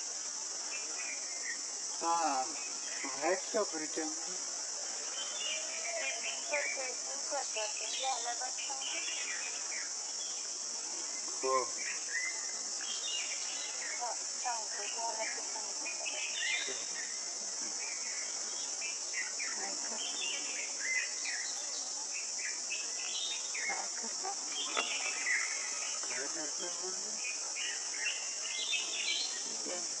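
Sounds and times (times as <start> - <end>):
insects droning: 0.0 - 30.0.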